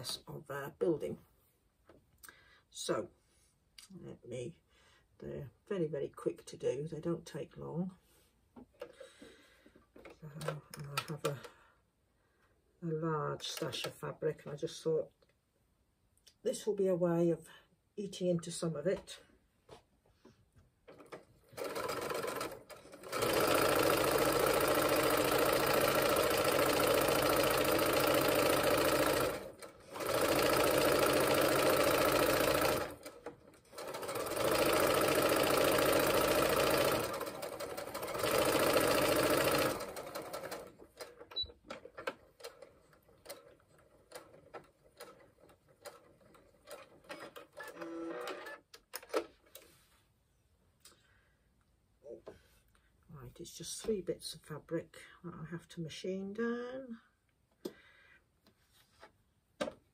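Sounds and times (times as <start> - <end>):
electric sewing machine stitching: 20.9 - 48.6.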